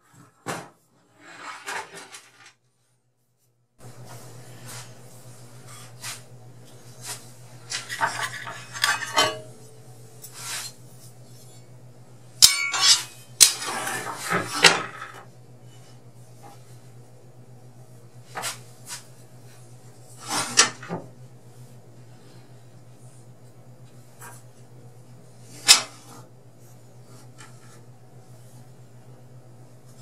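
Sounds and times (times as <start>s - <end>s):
metal tools clinking and rattling: 12.4s - 13.2s.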